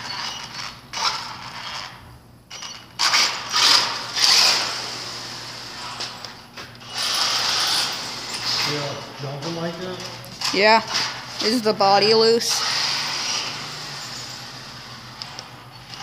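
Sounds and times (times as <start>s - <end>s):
toy truck motor and gears: 0.0s - 9.7s, 10.4s - 16.0s.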